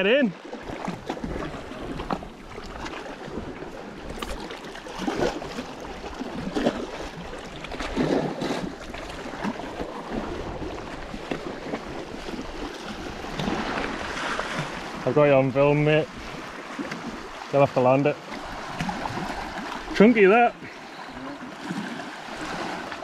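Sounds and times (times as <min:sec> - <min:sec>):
sea water splashing on rocks: 0:00.5 - 0:15.0, 0:18.3 - 0:20.3, 0:21.4 - 0:23.0.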